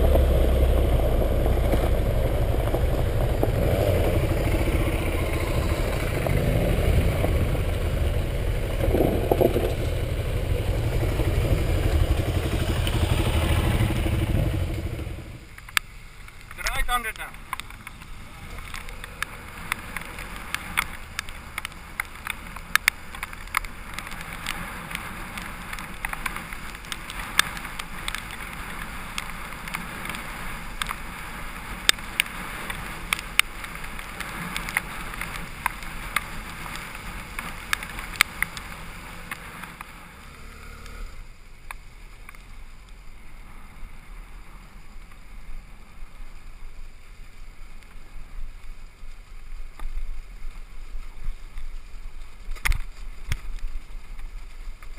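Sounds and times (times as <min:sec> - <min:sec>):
motorcycle riding: 0:00.0 - 0:54.9
tyre noise on gravel: 0:00.0 - 0:54.9
sharp ticks: 0:31.8 - 0:38.7.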